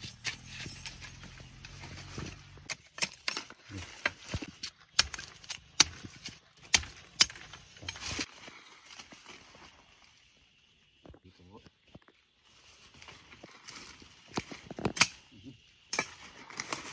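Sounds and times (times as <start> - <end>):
blade chopping bamboo: 0.0 - 8.3
leaves rustling: 0.0 - 16.9.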